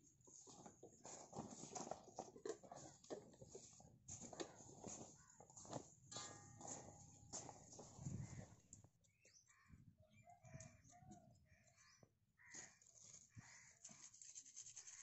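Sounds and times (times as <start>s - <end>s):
crows cawing: 11.6s - 14.0s.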